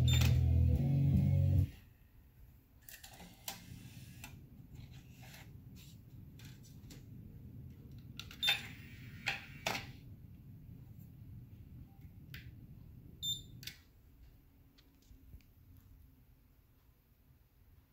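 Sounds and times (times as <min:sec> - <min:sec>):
music from car stereo: 0:00.0 - 0:01.7
faint low hum: 0:00.0 - 0:17.9.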